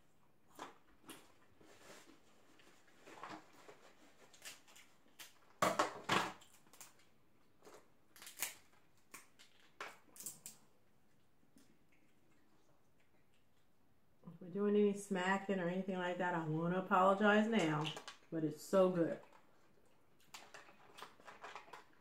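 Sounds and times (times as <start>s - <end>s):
crab shells cracking: 6.3s - 10.7s.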